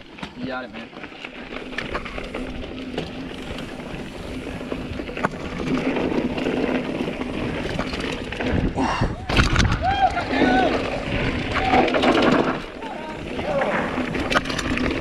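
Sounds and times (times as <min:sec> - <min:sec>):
bike clicks and rattles: 0:00.0 - 0:15.0
tyre noise on dirt trail: 0:00.0 - 0:15.0
wind on microphone: 0:08.3 - 0:12.1.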